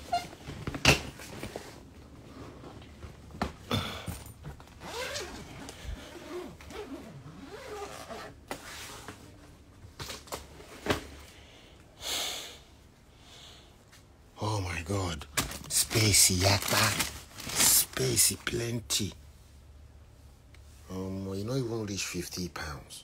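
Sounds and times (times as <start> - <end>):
zipper rasping open: 4.7 - 8.4.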